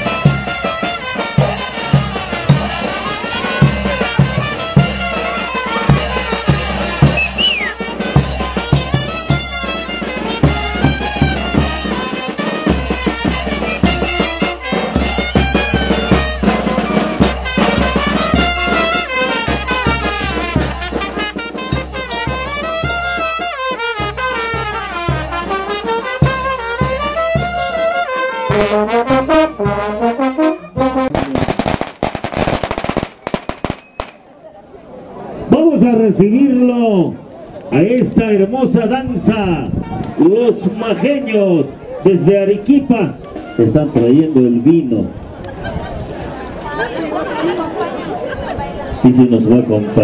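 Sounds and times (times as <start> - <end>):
brass band playing: 0.0 - 34.2, 42.8 - 44.6
sharp cracks: 31.1 - 34.2.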